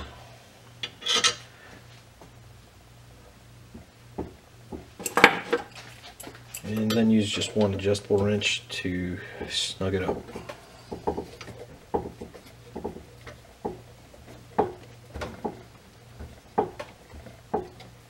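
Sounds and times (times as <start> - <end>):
wrench clinking on metal fitting: 5.0 - 7.3.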